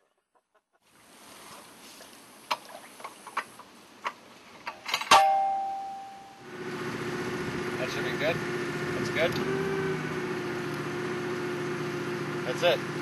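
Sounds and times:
ringing metal clang: 4.7 - 6.4.

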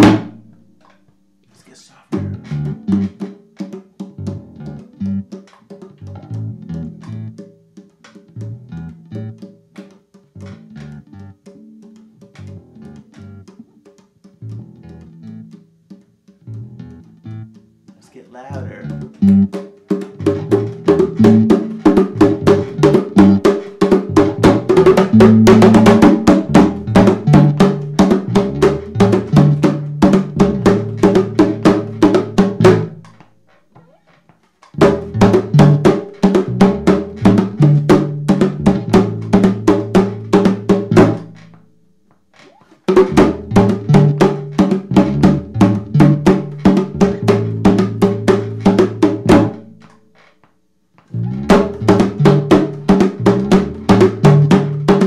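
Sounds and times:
electric bass line: 0.0 - 0.8, 2.1 - 3.2, 4.2 - 5.3, 6.0 - 7.4, 8.3 - 9.4, 10.4 - 11.4, 12.2 - 13.5, 14.4 - 15.6, 16.4 - 17.6, 18.5 - 19.6, 20.2 - 33.3, 34.7 - 41.6, 43.0 - 50.0, 51.1 - 55.0
bongos played by hand: 0.0 - 55.0.

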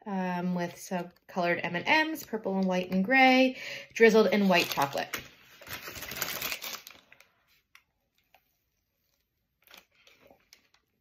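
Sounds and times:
paper wrapper crinkling: 4.3 - 11.0.

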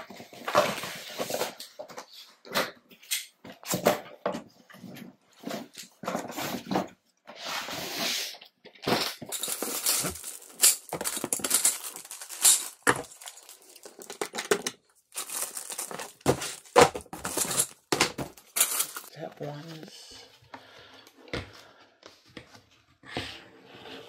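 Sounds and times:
cardboard and plastic rustling: 8.7 - 19.9
metal tubes clicking and knocking: 9.3 - 19.1.

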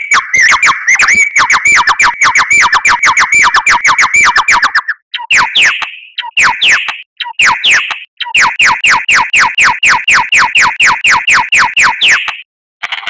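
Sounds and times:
bird whistling sharp descending notes: 0.0 - 8.8.

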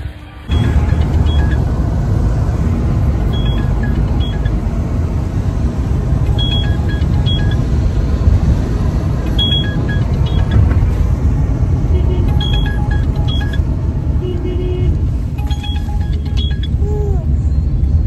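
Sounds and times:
car interior rumble: 0.0 - 18.0.

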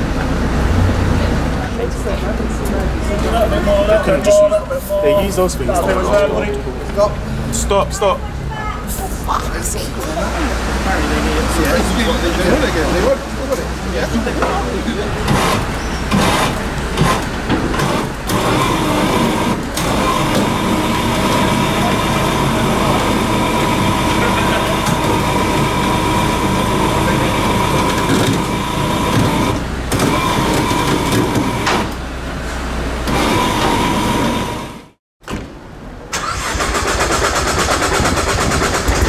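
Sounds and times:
indistinct voices: 0.0 - 31.8
motor whining: 15.3 - 32.0, 33.0 - 34.9.

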